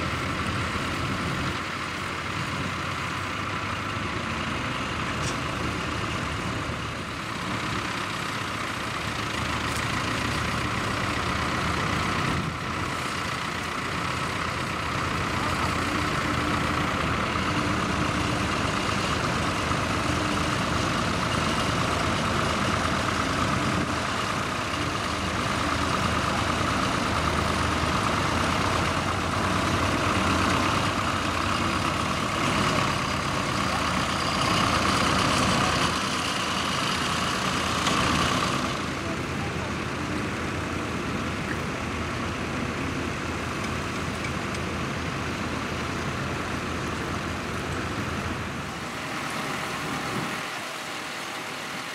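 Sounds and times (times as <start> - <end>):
diesel tractor engines: 0.0 - 51.9.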